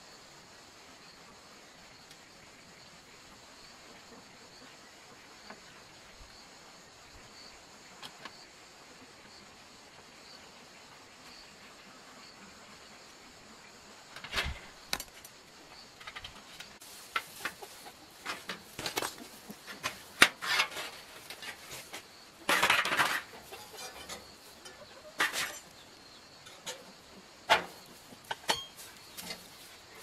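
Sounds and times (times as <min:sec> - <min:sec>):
metal scraping: 0:16.0 - 0:25.8.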